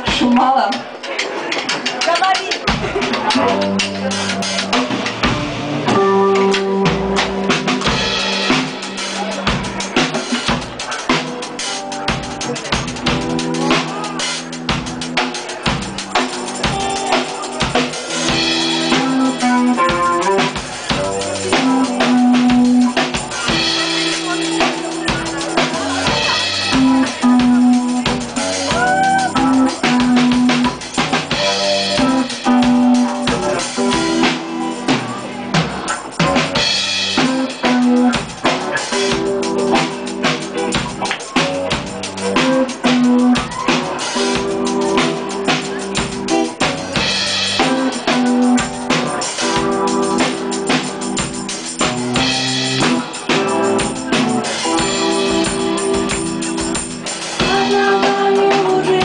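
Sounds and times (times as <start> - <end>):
drum kit beat: 0.0 - 59.0
electric guitar riff: 3.4 - 9.6, 16.1 - 59.0.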